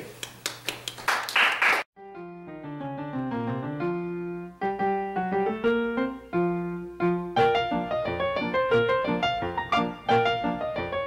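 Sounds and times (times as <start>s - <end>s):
clapping: 0.2s - 1.9s
solo piano tune: 2.0s - 11.0s.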